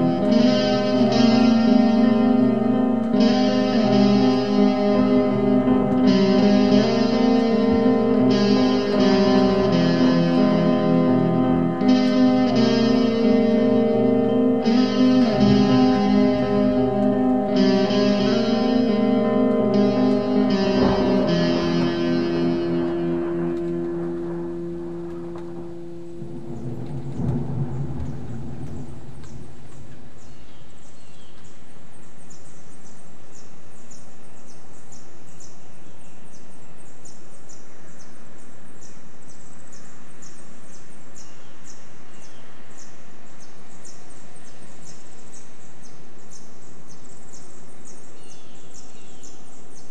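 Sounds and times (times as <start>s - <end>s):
thunder rumble: 0.0s - 30.2s
steady rain: 0.0s - 30.3s.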